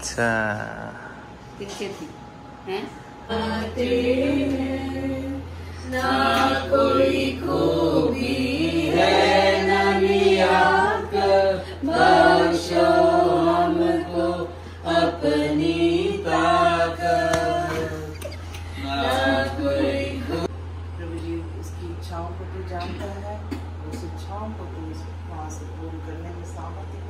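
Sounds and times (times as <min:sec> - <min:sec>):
steady low hum: 0:00.0 - 0:27.0
group singing a hymn: 0:03.2 - 0:20.5.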